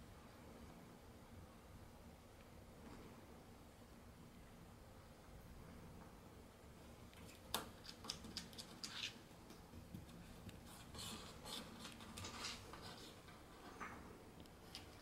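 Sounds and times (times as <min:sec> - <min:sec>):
cat claws clicking on wood: 0:07.2 - 0:09.2.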